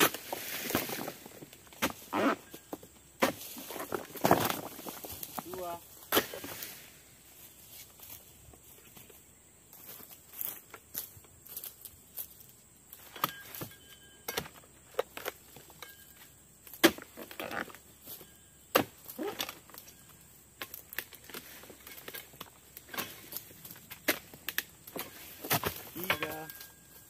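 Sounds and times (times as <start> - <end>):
sickle hacking palm fronds: 0.0 - 2.4, 3.2 - 7.0, 20.6 - 26.7.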